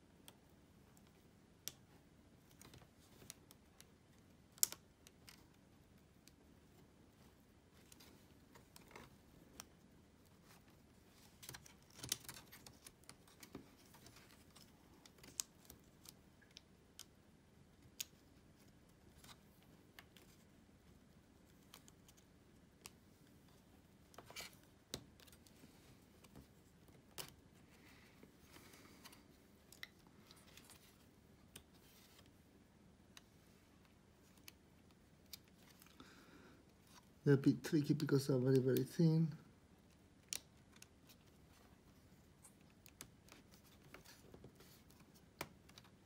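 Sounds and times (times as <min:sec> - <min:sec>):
small clicks of ribbon connectors: 0:04.5 - 0:05.4.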